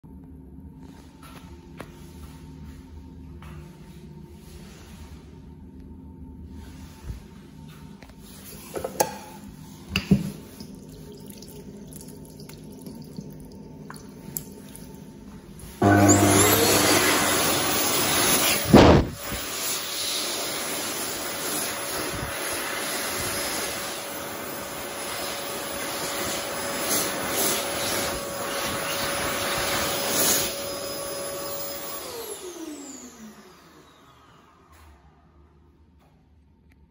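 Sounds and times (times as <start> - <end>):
motor winding down: 15.8 - 19.3
hand dryer blowing air: 15.8 - 34.7
loud thump: 18.6 - 19.4.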